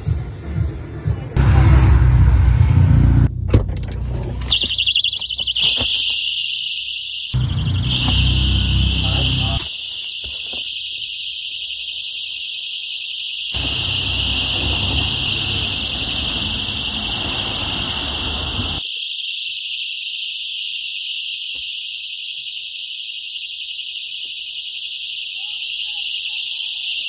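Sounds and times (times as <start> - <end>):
street noise: 0.0 - 6.1, 7.4 - 10.7, 13.5 - 18.8
personal alarms shrieking: 4.5 - 27.0.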